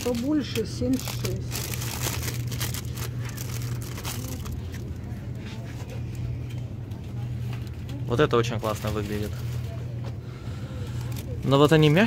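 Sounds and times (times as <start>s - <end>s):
cellophane crinkling: 0.0s - 5.1s
low hum: 0.0s - 12.0s.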